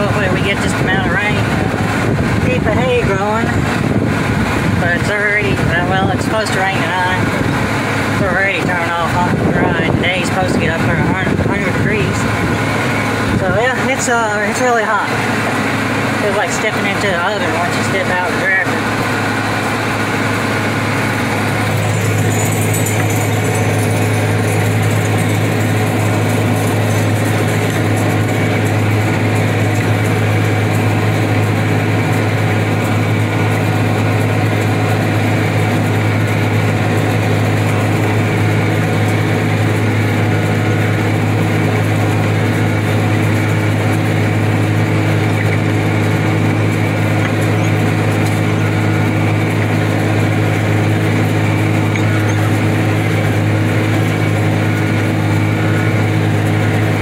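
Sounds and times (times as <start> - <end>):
tractor engine droning: 0.0 - 57.0
round baler taking in hay: 18.8 - 57.0.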